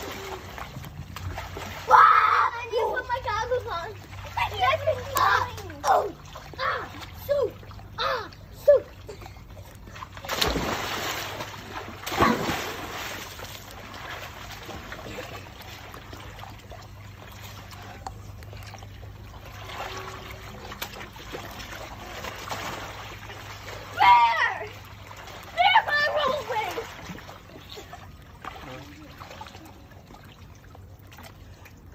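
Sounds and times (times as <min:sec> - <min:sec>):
water sloshing and lapping: 0:00.0 - 0:31.9
big splash into pool: 0:10.1 - 0:15.1.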